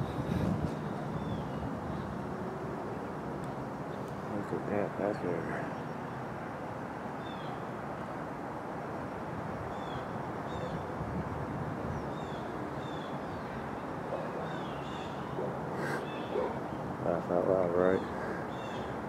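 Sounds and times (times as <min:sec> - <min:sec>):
small birds chirping: 0:03.4 - 0:07.7, 0:11.8 - 0:19.0.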